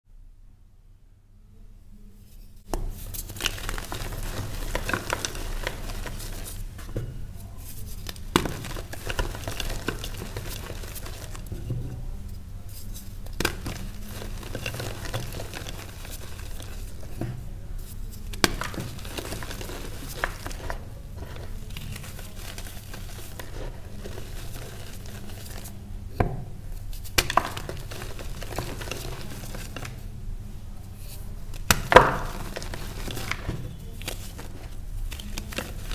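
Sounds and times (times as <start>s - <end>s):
chalk crunching and crumbling: 2.4s - 30.1s, 31.0s - 35.9s.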